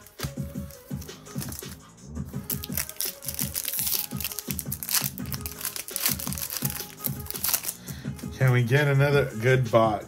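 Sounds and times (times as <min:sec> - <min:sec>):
background music: 0:00.0 - 0:10.0
foil packaging crinkling: 0:02.4 - 0:07.8.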